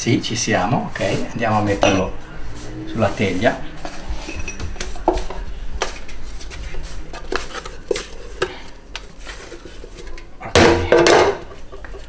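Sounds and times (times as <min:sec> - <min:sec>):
kitchenware clatter: 0:01.7 - 0:02.2, 0:04.2 - 0:05.3, 0:09.8 - 0:12.0.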